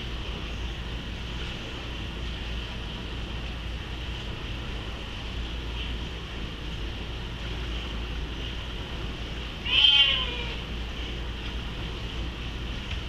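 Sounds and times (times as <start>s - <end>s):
cat meowing: 9.6s - 10.7s.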